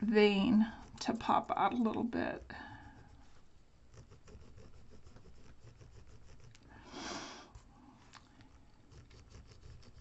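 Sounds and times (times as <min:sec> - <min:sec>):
stylus scratching paper: 0:00.4 - 0:06.7, 0:08.8 - 0:10.0.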